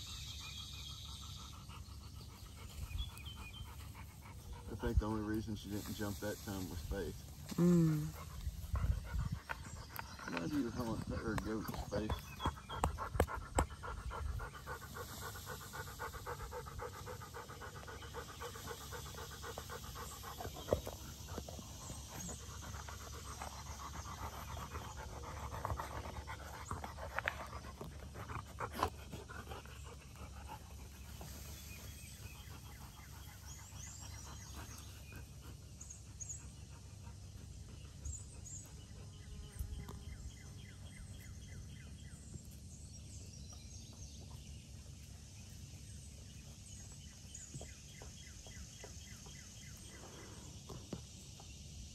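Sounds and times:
dog panting: 0.4 - 39.3.

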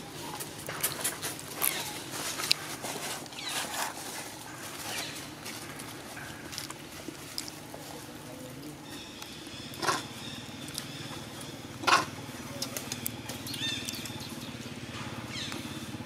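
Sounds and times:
dry leaves rustling underfoot: 0.0 - 11.6.

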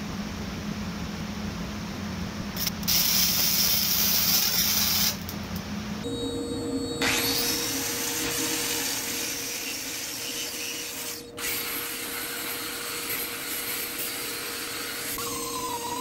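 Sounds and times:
angle grinder grinding steel: 7.0 - 16.0.

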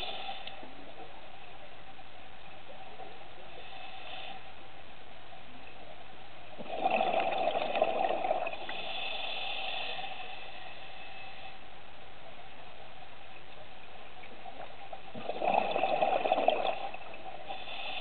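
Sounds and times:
soft regulator hiss: 0.0 - 6.6, 8.4 - 15.2, 16.7 - 18.0
gurgling exhaled bubbles: 6.6 - 8.7, 15.0 - 17.4.

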